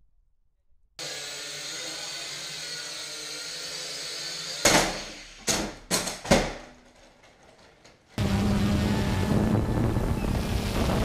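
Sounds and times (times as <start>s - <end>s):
toy drone propellers whining: 1.0s - 5.4s
drone crashing: 8.2s - 11.0s.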